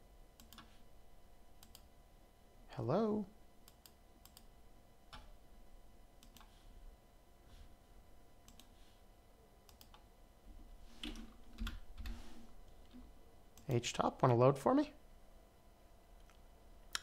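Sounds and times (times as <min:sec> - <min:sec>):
computer mouse clicks: 0:00.4 - 0:00.7, 0:01.6 - 0:01.9, 0:03.6 - 0:04.5, 0:06.2 - 0:06.5, 0:08.4 - 0:08.8, 0:09.7 - 0:10.0, 0:16.2 - 0:17.0.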